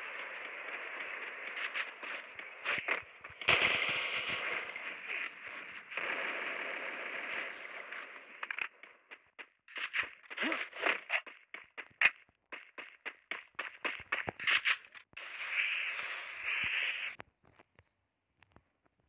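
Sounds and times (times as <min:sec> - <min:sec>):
firework crackling pops: 0:00.0 - 0:11.2, 0:13.8 - 0:17.2
firework hissing spray: 0:15.2 - 0:17.2.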